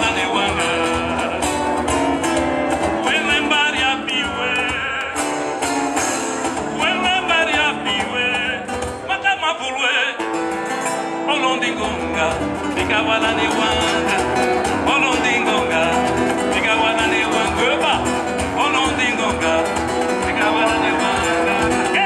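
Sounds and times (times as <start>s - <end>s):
man singing ornamented melody: 0.0s - 1.8s, 11.1s - 22.0s
acoustic guitars: 0.0s - 22.0s.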